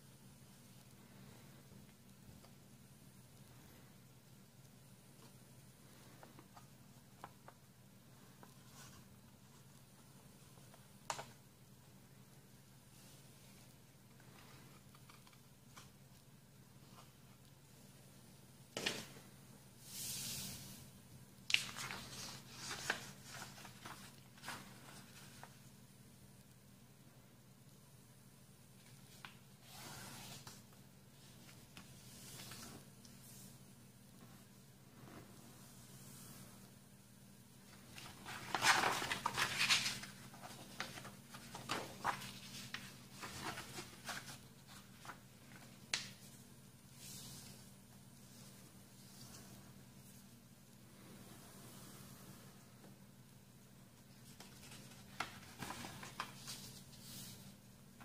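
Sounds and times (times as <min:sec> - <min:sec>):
paper crinkling as folded: 0:21.5 - 0:25.6, 0:37.7 - 0:46.4, 0:54.2 - 0:57.5.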